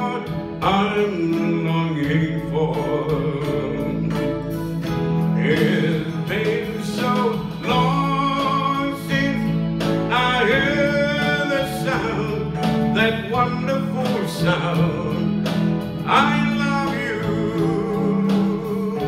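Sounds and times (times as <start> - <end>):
bass line: 0.0 - 19.0
keyboard: 0.0 - 19.0
man singing a ballad: 0.0 - 19.0.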